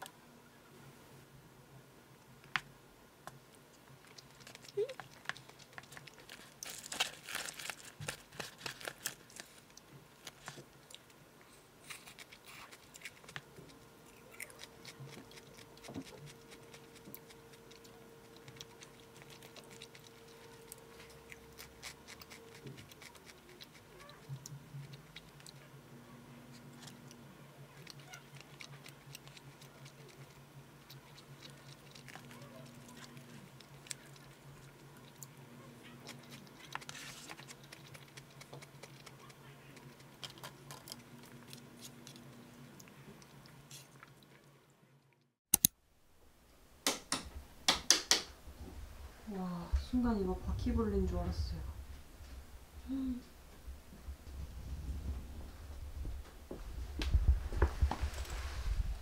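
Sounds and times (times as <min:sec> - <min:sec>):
faint chewing: 0:03.3 - 0:45.3.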